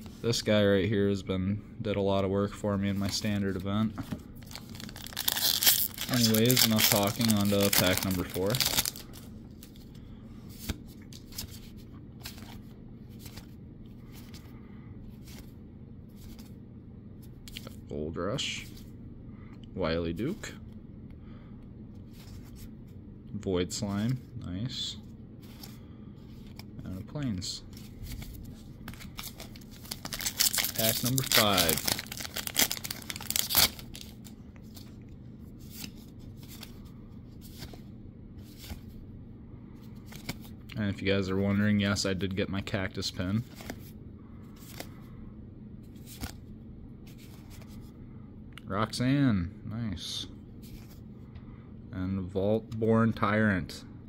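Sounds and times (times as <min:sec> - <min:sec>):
low steady hum: 0:00.0 - 0:54.0
foil wrapper tearing and crinkling: 0:04.4 - 0:09.2, 0:29.1 - 0:34.2
cards sliding swishes: 0:35.6 - 0:37.8.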